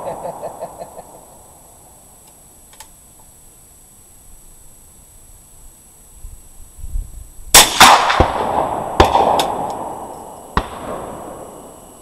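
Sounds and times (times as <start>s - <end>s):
faint gunshot cracks: 7.6s - 10.0s
rifle shots echoing: 7.6s - 11.8s.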